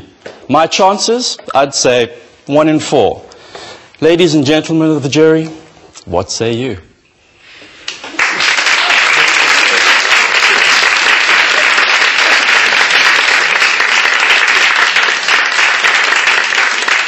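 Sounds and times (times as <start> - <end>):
audience applauding: 7.9 - 17.0.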